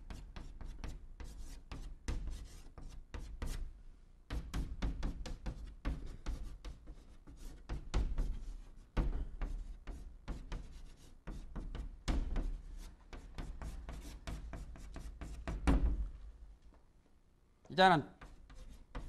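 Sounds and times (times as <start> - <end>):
chalk knocking against board: 0.0 - 3.6, 4.3 - 16.0, 18.2 - 19.0
chalk tapping and scraping on board: 0.0 - 3.7, 4.3 - 16.0, 18.2 - 19.0.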